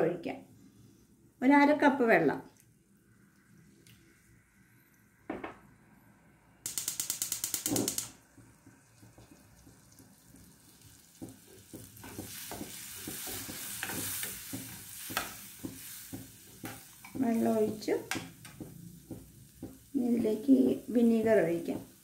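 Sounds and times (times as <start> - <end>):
gas stove igniter clicking: 6.7 - 8.2
spice paste sizzling: 6.7 - 22.0
steel ladle scraping a pan: 12.0 - 17.8.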